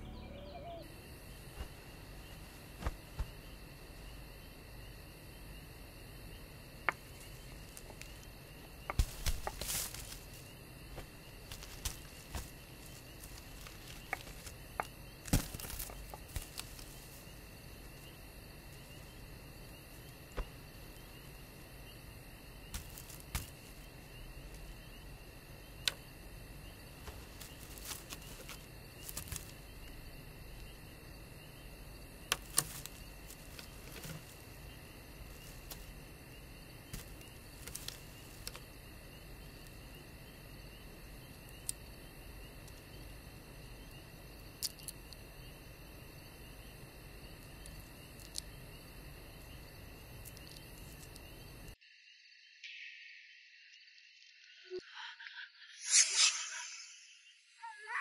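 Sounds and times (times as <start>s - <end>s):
faint steady hiss: 0.7s - 54.8s
thin high tone: 55.8s - 58.0s.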